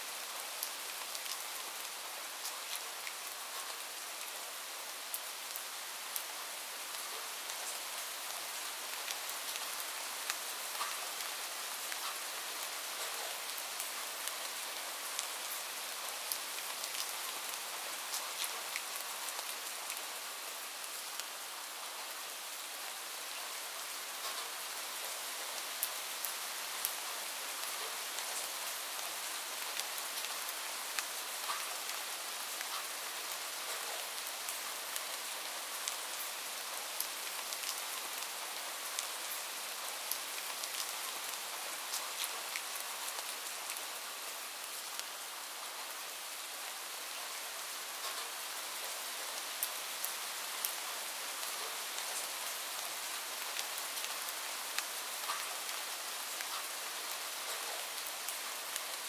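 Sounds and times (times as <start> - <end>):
light rain hissing: 0.0 - 59.0
raindrop ticks: 10.3 - 11.0, 54.8 - 55.5.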